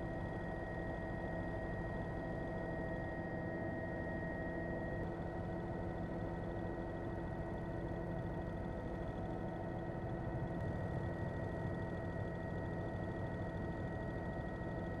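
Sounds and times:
helicopter engine and rotor: 0.0 - 15.0.

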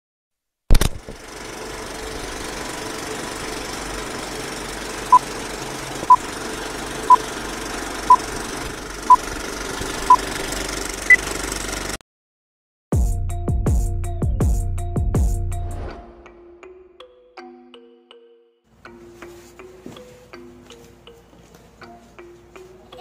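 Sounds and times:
film projector whir and crackle: 0.7 - 12.0.

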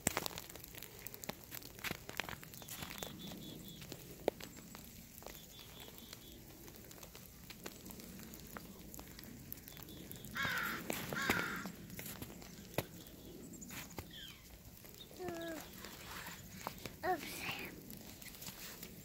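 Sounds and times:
hands crunching packed snow: 10.3 - 19.0
crow cawing: 10.4 - 11.8.

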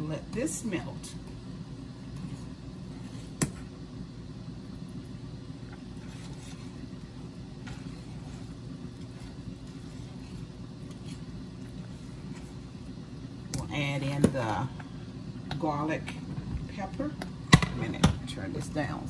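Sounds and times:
steady low hum: 0.0 - 19.0
whisk stirring sauce in saucepan: 4.9 - 13.5.

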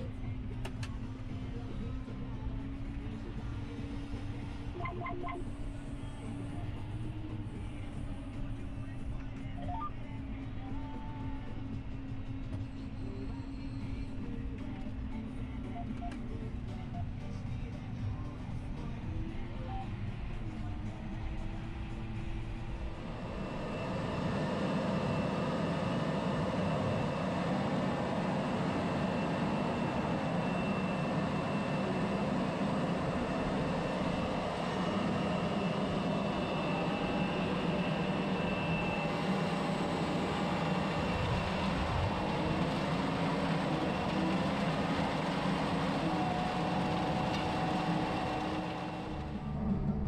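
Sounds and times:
tractor diesel engine under load: 21.6 - 50.0.

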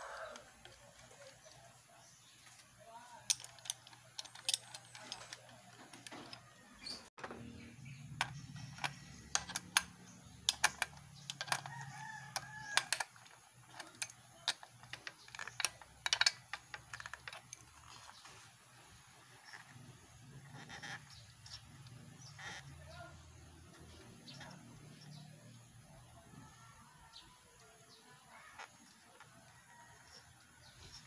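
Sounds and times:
rooster crowing: 0.0 - 0.6, 11.6 - 12.9
wrench clicking on metal: 3.3 - 6.4, 8.2 - 18.0.

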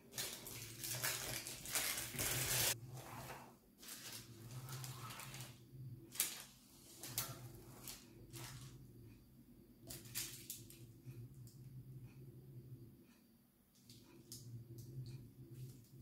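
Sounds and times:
plastic piping bag crinkling: 0.0 - 2.8, 3.8 - 8.7.

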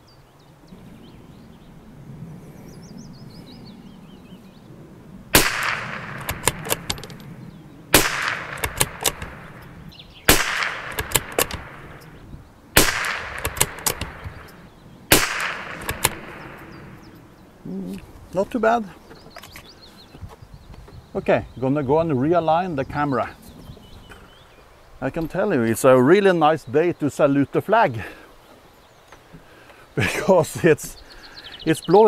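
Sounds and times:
rifle shots: 5.3 - 7.2, 7.9 - 12.1, 12.8 - 17.0
rifle bolt clicks: 5.4 - 7.3, 8.0 - 9.7, 10.3 - 12.1, 12.8 - 16.7.

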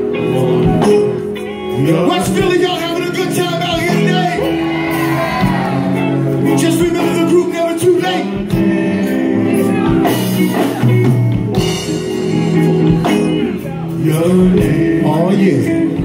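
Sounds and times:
drums: 0.0 - 16.0
keyboards: 0.0 - 16.0
men singing: 6.4 - 10.7, 13.9 - 16.0.

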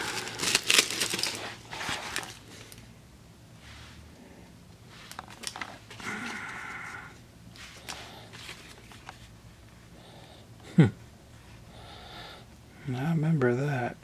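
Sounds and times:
wrappers crinkling: 0.0 - 2.8.

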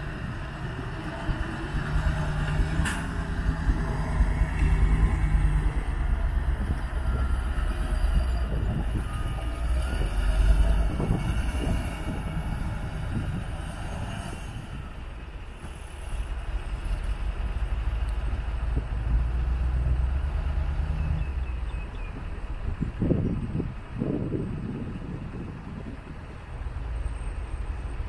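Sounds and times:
diesel truck engine rumbling: 0.0 - 28.0.

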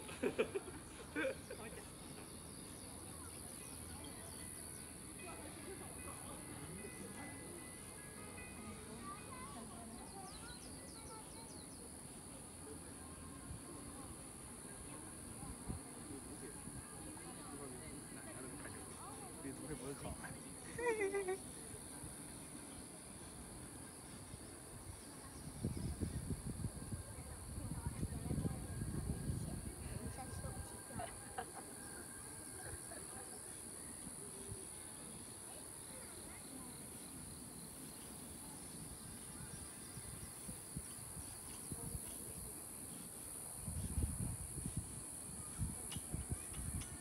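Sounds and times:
insects shrilling in trees: 0.0 - 47.0
high-pitched insect chorus: 27.4 - 47.0.

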